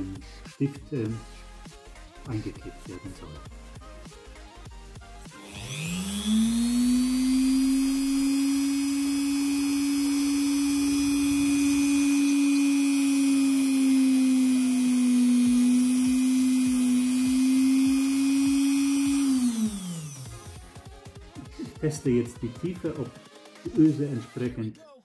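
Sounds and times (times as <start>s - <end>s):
rotary tool motor whirring: 5.3s - 20.7s.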